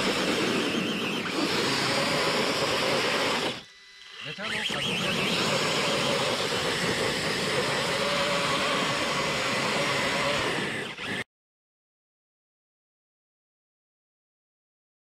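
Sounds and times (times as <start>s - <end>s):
electric motors whining: 0.0s - 11.3s.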